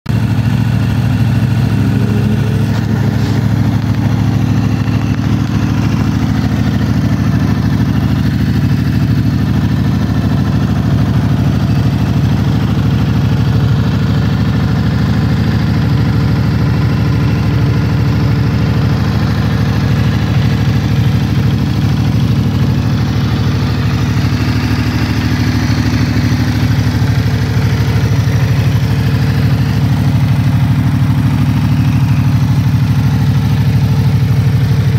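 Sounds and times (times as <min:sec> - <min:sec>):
motorcycle engine idling: 0:00.1 - 0:34.9.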